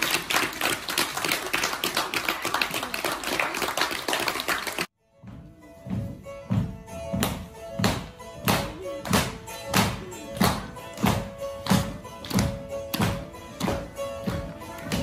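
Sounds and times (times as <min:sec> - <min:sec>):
plucked zither dance tune: 0:05.0 - 0:15.0.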